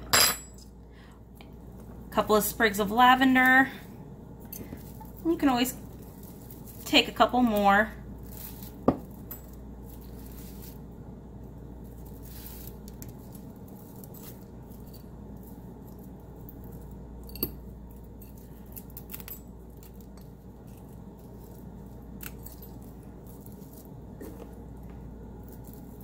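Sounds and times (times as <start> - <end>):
low steady hum: 0.0 - 26.0
dried lavender rustling: 2.7 - 17.2, 19.9 - 26.0.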